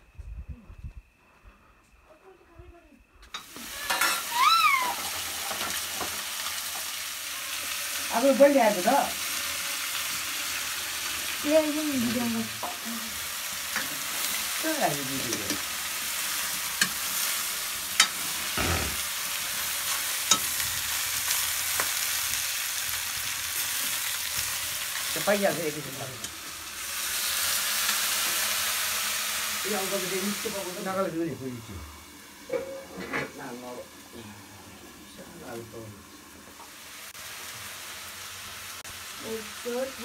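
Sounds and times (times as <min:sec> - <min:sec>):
food sizzling in a pan: 0:03.3 - 0:40.0.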